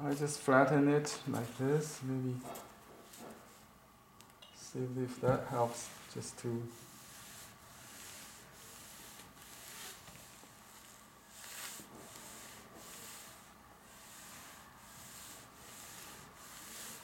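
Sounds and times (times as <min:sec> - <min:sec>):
iron rubbing over mesh: 0:05.5 - 0:17.0.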